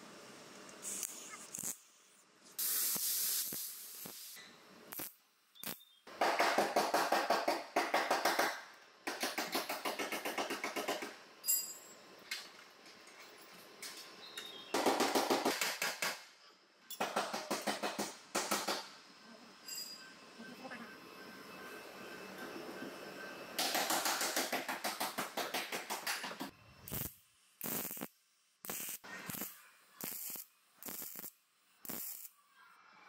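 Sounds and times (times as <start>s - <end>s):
pneumatic tool chattering on metal: 26.9s - 32.3s.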